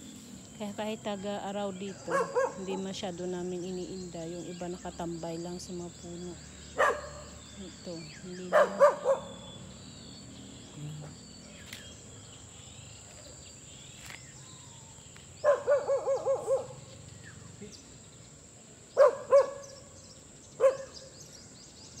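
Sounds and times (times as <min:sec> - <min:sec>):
faint bird chirps: 0:00.0 - 0:22.0
dog barking: 0:02.0 - 0:02.9, 0:06.8 - 0:07.4, 0:08.5 - 0:09.4, 0:15.4 - 0:16.8, 0:19.0 - 0:19.7, 0:20.6 - 0:21.0.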